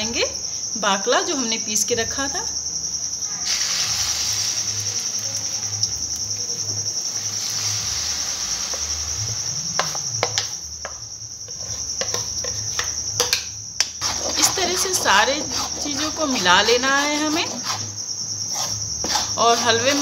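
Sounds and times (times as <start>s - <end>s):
paste sizzling in hot fat: 3.4s - 13.3s, 14.0s - 20.0s.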